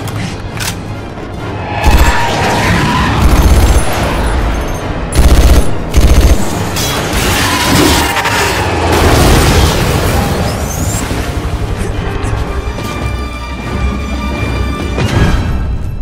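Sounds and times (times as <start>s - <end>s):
action music: 0.5s - 16.0s
automatic gunfire bursts: 5.2s - 6.6s.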